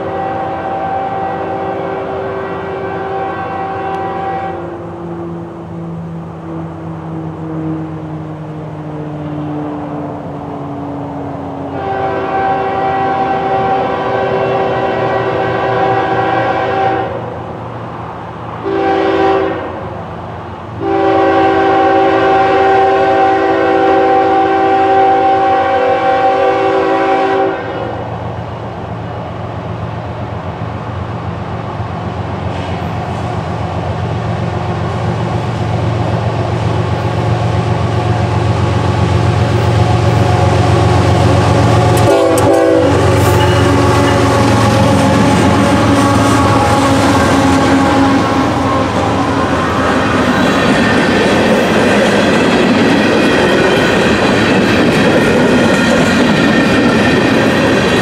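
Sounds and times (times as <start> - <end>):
locomotive air horn: 0.0 - 4.8, 11.7 - 17.4, 18.6 - 19.9, 20.8 - 28.1, 39.5 - 50.9
diesel engines rumbling: 4.2 - 18.9, 28.1 - 55.6.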